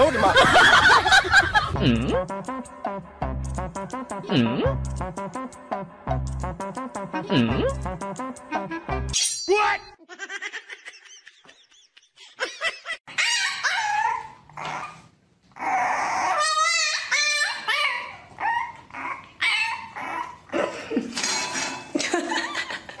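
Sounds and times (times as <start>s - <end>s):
puppy crying and yipping: 13.0s - 20.6s
husky whining and yipping: 13.1s - 20.5s.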